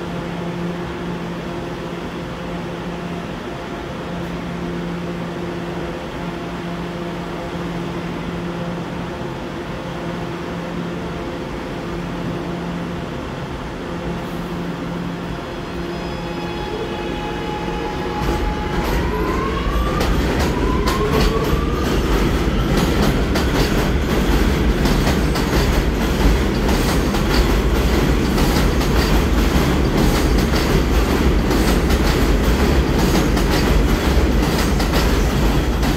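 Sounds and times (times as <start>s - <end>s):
subway train humming: 0.0s - 35.9s
train rumble and wheel clatter: 0.0s - 35.9s
train motor whine: 15.4s - 23.5s.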